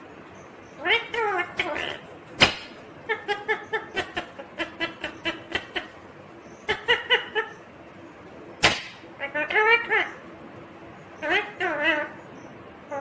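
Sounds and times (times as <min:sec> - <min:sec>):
parakeet chuckling calls: 0:00.8 - 0:07.8, 0:08.6 - 0:10.2, 0:11.2 - 0:12.3.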